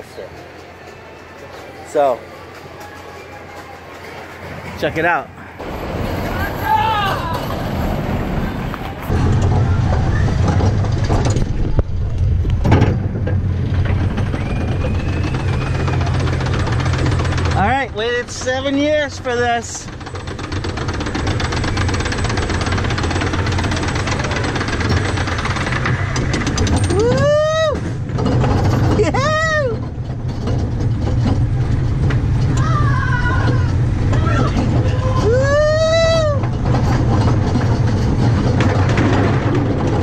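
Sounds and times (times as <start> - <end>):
coaster clattering: 0.0 - 40.0
roller coaster car rumbling: 0.0 - 40.0
rider whooping: 6.2 - 7.6, 13.8 - 17.5, 26.7 - 28.0, 28.8 - 29.9, 32.5 - 36.8.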